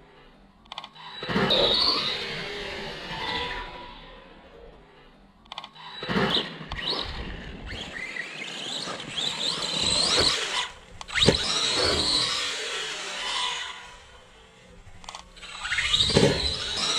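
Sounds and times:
electric motor whining: 6.7s - 16.9s.

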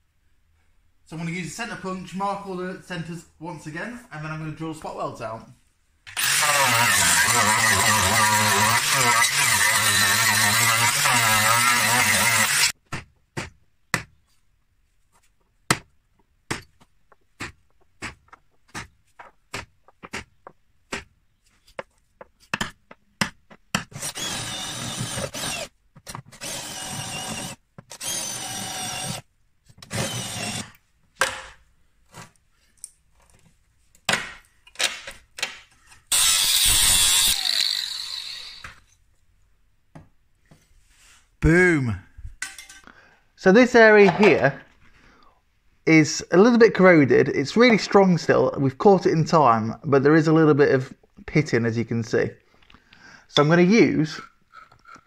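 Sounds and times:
angle grinder running: 6.1s - 12.7s, 24.0s - 25.7s, 36.1s - 38.8s
cordless drill boring metal: 6.1s - 12.8s, 23.9s - 25.7s, 26.3s - 29.2s, 29.8s - 30.8s, 36.1s - 38.8s.

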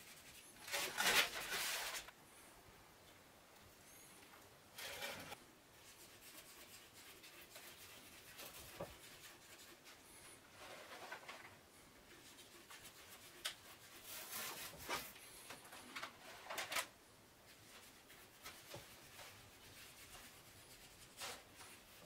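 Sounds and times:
squeegee scraping vinyl film: 0.5s - 2.1s
plastic film crackling: 0.6s - 2.1s.

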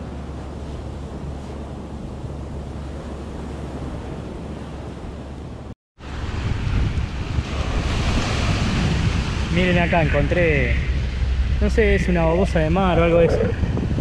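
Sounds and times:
ocean surf: 0.0s - 14.0s
wind buffeting microphone: 0.0s - 14.0s
surf washing over rock: 6.0s - 14.0s.

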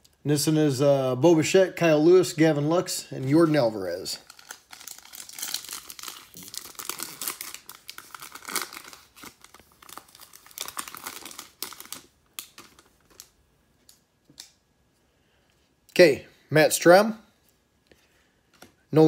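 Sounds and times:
foil wrapper crinkling and tearing: 4.0s - 13.4s.

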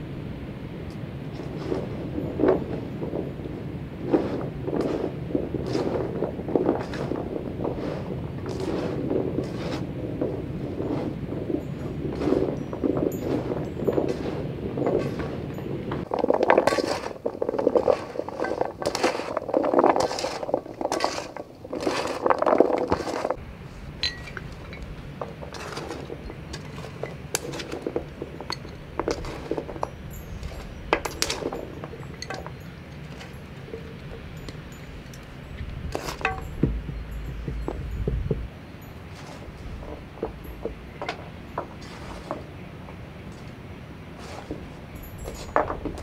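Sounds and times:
hands mixing chopped vegetables: 4.1s - 9.9s, 16.1s - 23.3s, 25.5s - 29.8s
glass jars clinking: 10.4s - 19.9s, 24.0s - 24.9s, 25.6s - 42.7s, 44.2s - 46.0s.

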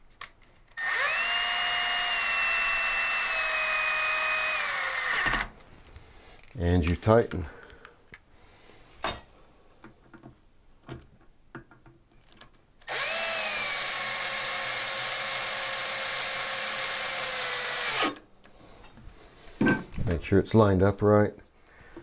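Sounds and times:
cordless drill whining: 0.7s - 5.5s, 12.8s - 18.2s.

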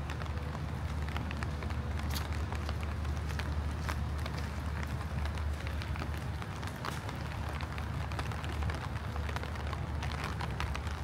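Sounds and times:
raindrops ticking: 0.0s - 11.0s
steady low rumble: 0.0s - 11.0s.

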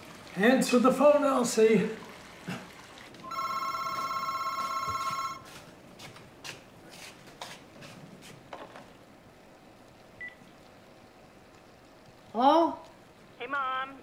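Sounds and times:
cordless telephone ringing: 3.2s - 5.4s.

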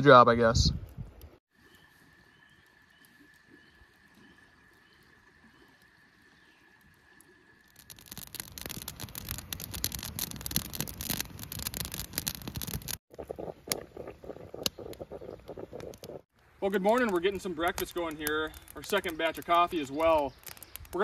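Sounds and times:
wood fire crackling: 6.6s - 21.0s
coffee percolator bubbling: 7.6s - 16.3s.

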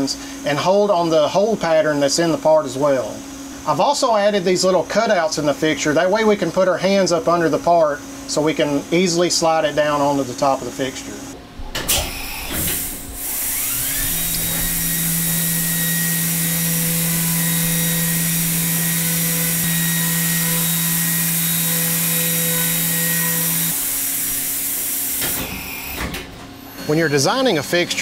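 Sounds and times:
mill spindle whining: 11.9s - 28.0s
mill cutting aluminium: 12.6s - 25.9s.

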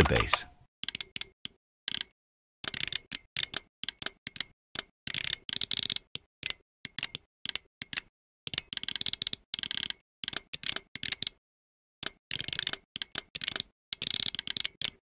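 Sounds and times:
keyboard typing: 0.0s - 0.5s.

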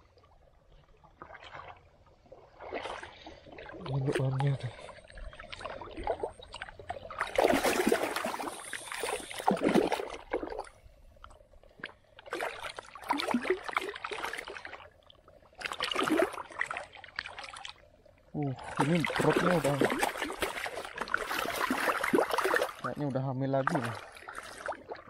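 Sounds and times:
pond water splashing and sloshing: 0.0s - 25.0s.

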